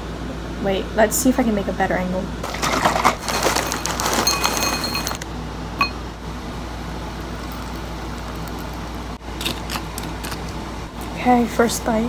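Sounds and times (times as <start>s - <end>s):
granola rattling into glass bowl: 2.4s - 5.2s
clink on glass bowl: 4.3s - 5.2s.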